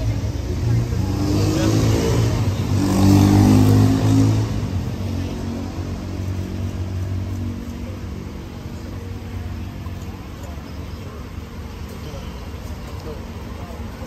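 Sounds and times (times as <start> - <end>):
vehicle engine revving: 0.0 - 10.4.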